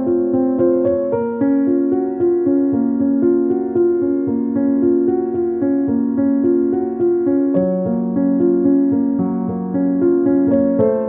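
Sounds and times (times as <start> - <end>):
slow piano melody: 0.0 - 11.0.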